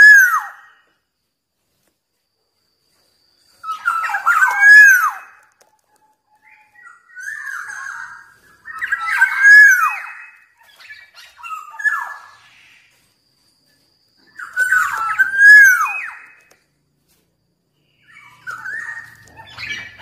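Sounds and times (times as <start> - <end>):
bird singing fluty whistles: 0.0 - 1.0, 3.4 - 5.6, 6.3 - 13.1, 13.7 - 16.8, 17.8 - 20.0.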